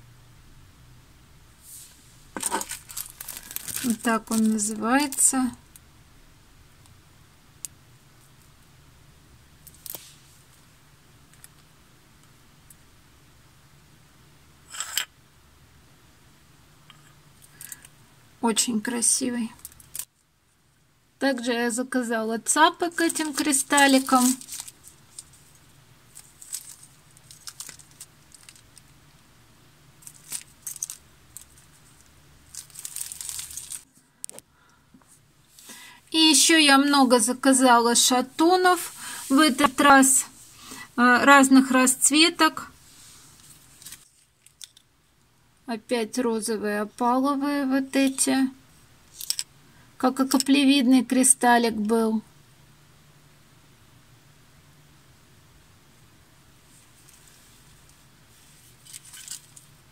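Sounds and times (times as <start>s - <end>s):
low room hum: 0.0s - 59.9s
plastic packet crinkling: 2.4s - 5.3s, 22.9s - 29.0s, 30.0s - 33.9s, 58.7s - 59.7s.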